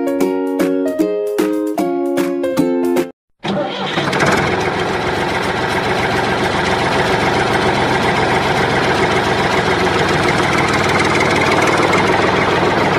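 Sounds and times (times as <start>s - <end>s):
tractor engine idling: 3.4s - 12.9s.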